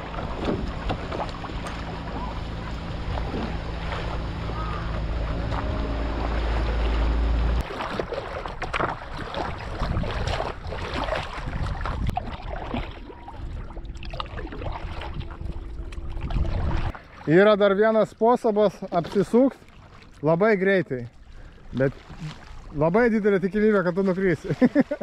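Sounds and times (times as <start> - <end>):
wind rumble on microphone: 0.0 - 17.0
water splashing from paddling: 0.0 - 25.0.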